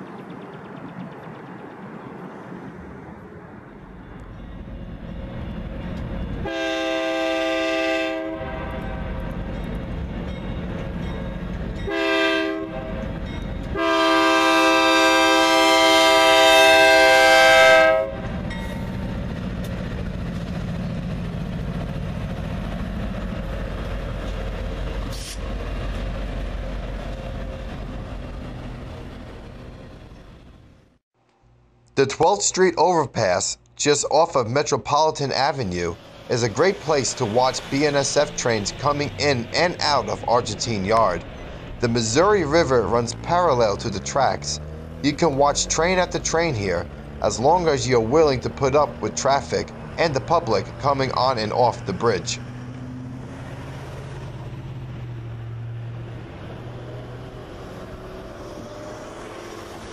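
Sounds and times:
train rumble and wheel clatter: 0:00.0 - 0:31.0, 0:34.6 - 0:59.9
locomotive horn blasts: 0:06.4 - 0:09.2, 0:11.8 - 0:18.4.

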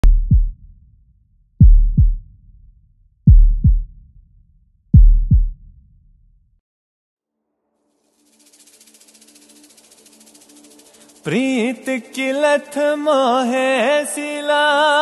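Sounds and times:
heartbeat-style double thumps: 0:00.0 - 0:00.7, 0:01.6 - 0:02.6, 0:03.3 - 0:04.1, 0:04.9 - 0:05.7.

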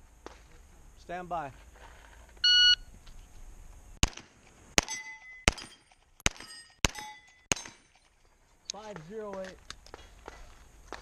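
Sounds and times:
shot timer beep: 0:02.4 - 0:02.8
pistol shots: 0:04.0 - 0:08.0
steel targets ringing: 0:04.8 - 0:08.0.

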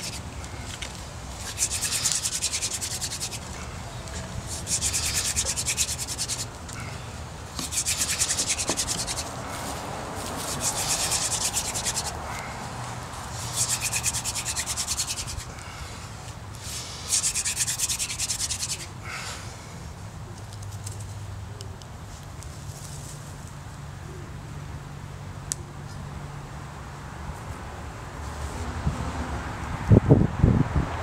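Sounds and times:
hand drill grinding wood on wood: 0:00.0 - 0:03.6, 0:04.2 - 0:06.8, 0:07.6 - 0:09.6, 0:10.3 - 0:12.3, 0:13.3 - 0:15.6, 0:17.1 - 0:18.9.

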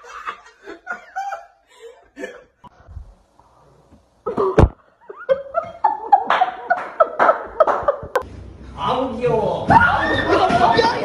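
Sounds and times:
women laughing: 0:00.0 - 0:02.5, 0:04.2 - 0:08.2.

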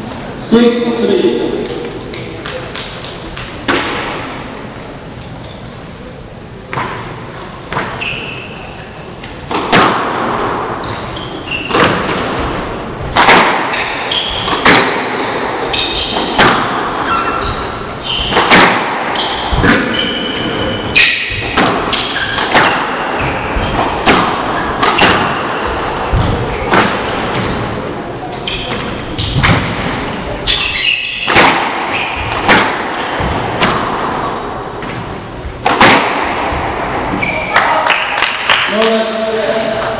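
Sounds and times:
squash ball hits echoing: 0:01.5 - 0:04.6, 0:06.7 - 0:08.5, 0:09.2 - 0:39.9
shoe squeaks on hardwood floor: 0:07.9 - 0:09.2, 0:10.8 - 0:11.9, 0:13.7 - 0:14.5, 0:15.6 - 0:16.3, 0:17.0 - 0:18.4, 0:19.1 - 0:23.8, 0:26.2 - 0:29.5, 0:30.4 - 0:31.3, 0:31.9 - 0:33.3, 0:37.1 - 0:37.6.

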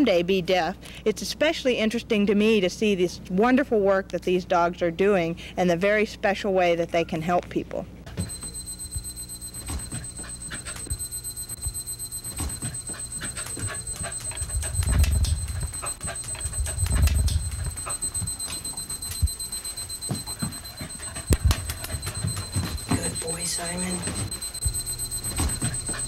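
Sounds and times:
kitchen timer alarm tone: 0:08.2 - 0:26.0.

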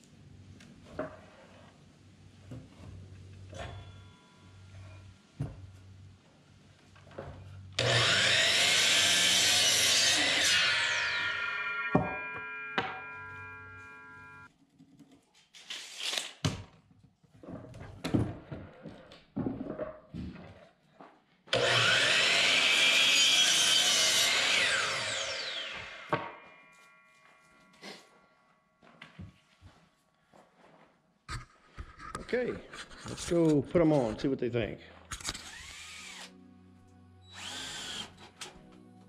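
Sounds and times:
miter saw whine: 0:07.8 - 0:14.5, 0:21.6 - 0:26.5
saw cutting through wood: 0:07.8 - 0:14.5, 0:21.5 - 0:26.6, 0:35.2 - 0:36.4, 0:37.3 - 0:38.6.

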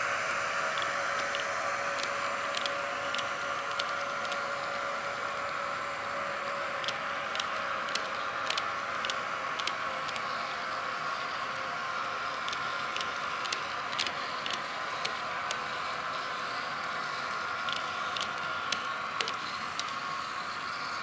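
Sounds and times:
model train whirring on track: 0:00.0 - 0:21.0
wheels clicking over rail joints: 0:00.8 - 0:04.5, 0:06.8 - 0:10.3, 0:12.4 - 0:15.7, 0:17.5 - 0:20.2.

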